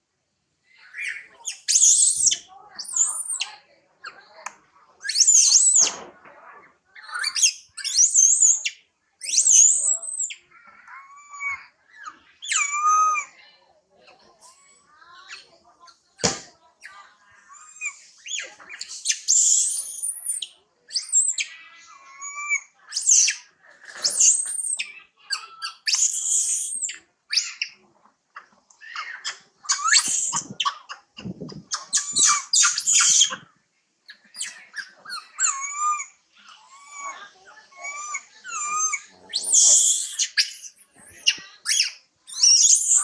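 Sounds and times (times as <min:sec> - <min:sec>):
macaques screaming and squealing: 0:00.9 - 0:03.5, 0:05.0 - 0:06.0, 0:07.0 - 0:13.4, 0:17.5 - 0:27.8, 0:28.8 - 0:33.4, 0:34.3 - 0:43.0.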